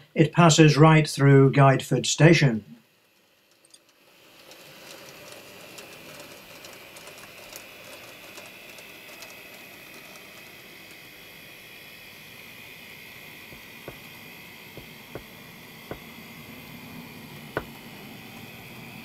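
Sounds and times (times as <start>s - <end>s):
model train motor whine: 2.9s - 14.1s
small wheels clicking on rails: 3.2s - 10.5s.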